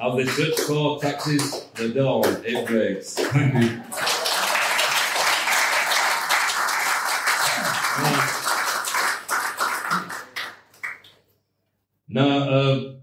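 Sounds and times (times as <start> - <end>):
audience applauding: 2.6 - 11.1.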